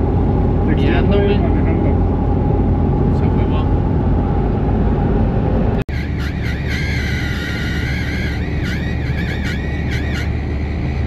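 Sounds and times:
car engine and road drone: 0:00.0 - 0:11.0
wavering high-pitched squeak: 0:05.9 - 0:11.0.

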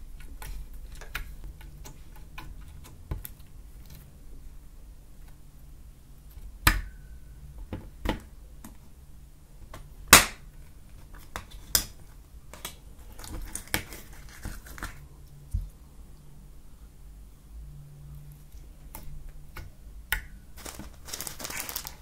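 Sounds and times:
slime popping and crackling: 0:20.6 - 0:22.0.

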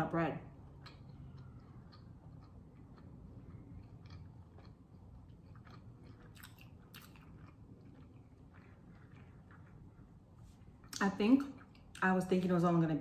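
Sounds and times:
chewing pizza: 0:00.6 - 0:12.0.

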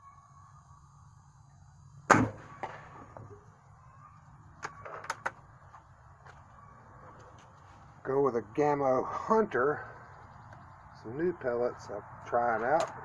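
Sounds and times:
air rifle shot: 0:02.1 - 0:03.2.

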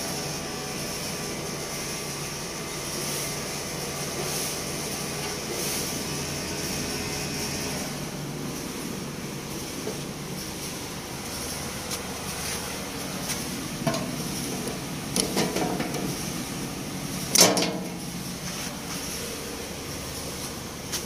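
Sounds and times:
mechanical hum: 0:00.0 - 0:21.0
metallic clanks on steel body: 0:13.8 - 0:16.2, 0:17.3 - 0:18.1.

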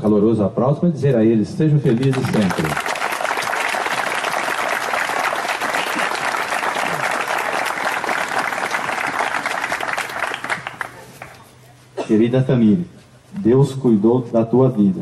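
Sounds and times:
crowd applauding: 0:01.9 - 0:11.4.

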